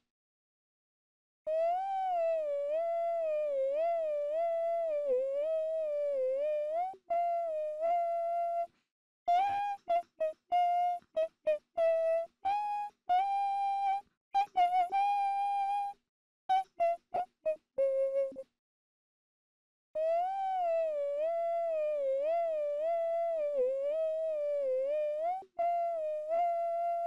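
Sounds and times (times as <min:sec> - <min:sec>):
person humming: 0:09.3 - 0:18.4, 0:20.0 - 0:27.0.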